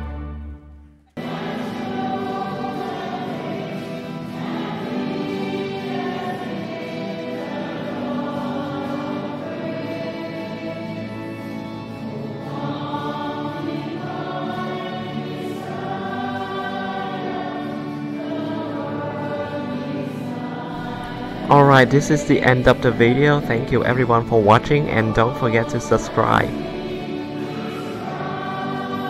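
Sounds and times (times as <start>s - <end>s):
slow long-held chords: 19.6s - 29.0s.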